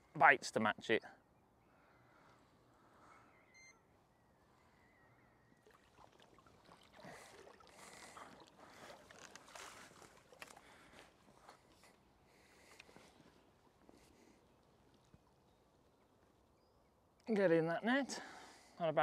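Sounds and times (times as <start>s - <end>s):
water splashing and sloshing: 5.5s - 15.9s.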